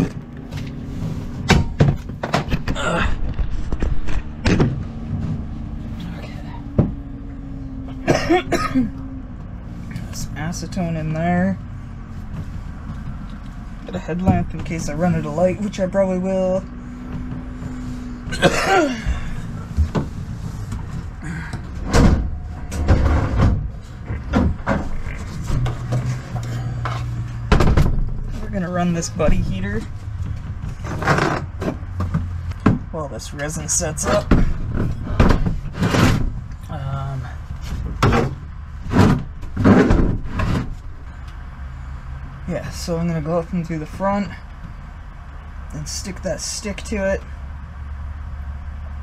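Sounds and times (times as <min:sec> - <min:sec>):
gear knocking and clattering: 0:00.0 - 0:07.2, 0:17.1 - 0:41.3
steady low hum: 0:00.0 - 0:49.0.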